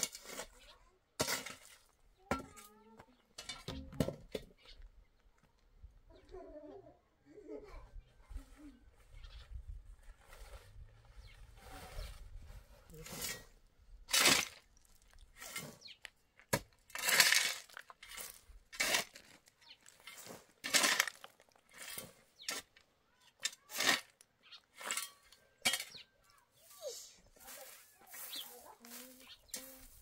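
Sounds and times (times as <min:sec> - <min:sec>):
metal shovel scraping dirt: 0:00.0 - 0:02.7, 0:10.0 - 0:30.0.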